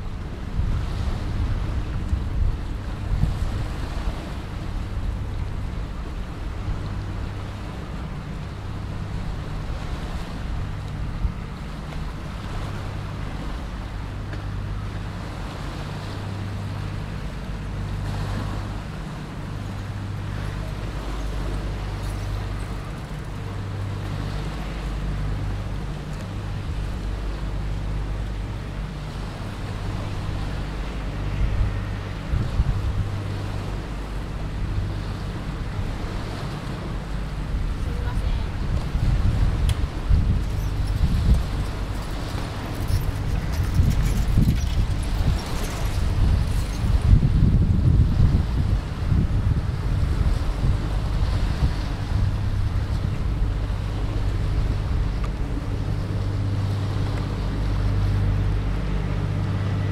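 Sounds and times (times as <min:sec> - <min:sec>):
boat engine droning: 0:00.0 - 0:59.9
water washing against hulls: 0:00.0 - 0:59.9
wind rumble on microphone: 0:00.0 - 0:59.9.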